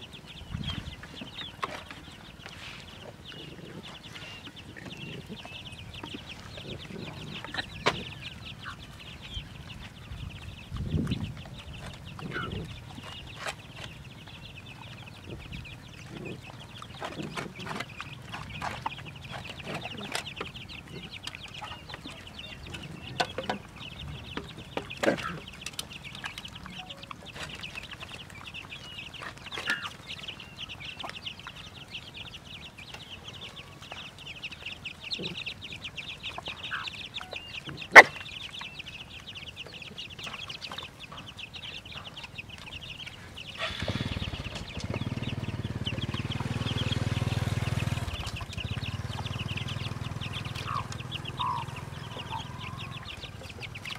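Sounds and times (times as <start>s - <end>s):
chickens clucking: 0.0s - 53.9s
chicks peeping: 0.0s - 53.9s
dogs eating from bowls: 10.8s - 32.0s.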